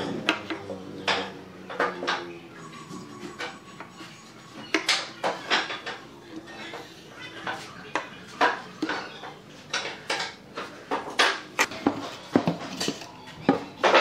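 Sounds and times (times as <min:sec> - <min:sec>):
metal tools knocking on wood: 0:07.5 - 0:14.0.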